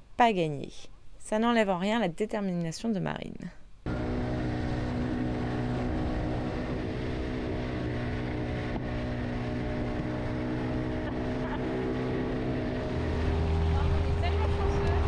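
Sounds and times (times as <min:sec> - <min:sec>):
wind: 0:00.0 - 0:15.0
outboard motor running: 0:03.8 - 0:15.0
water rushing: 0:03.9 - 0:15.0.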